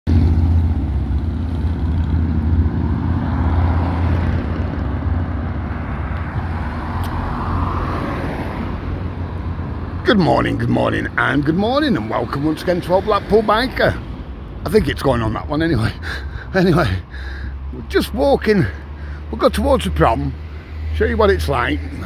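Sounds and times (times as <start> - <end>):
vehicle engine droning: 0.1 - 22.0.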